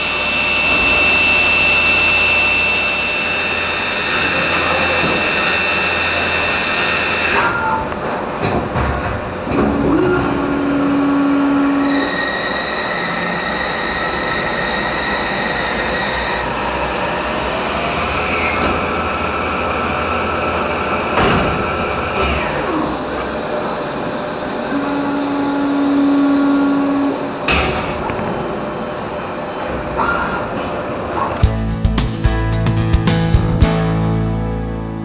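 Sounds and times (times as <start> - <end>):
lathe machining with whining tones: 0.0 - 8.0, 9.4 - 31.2.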